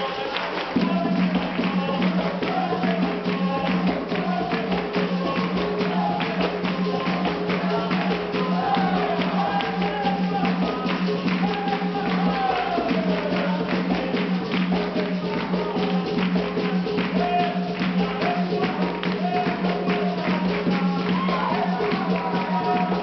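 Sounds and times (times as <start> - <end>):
group singing: 0.0 - 23.0
rapid hand-clapping: 0.0 - 23.0.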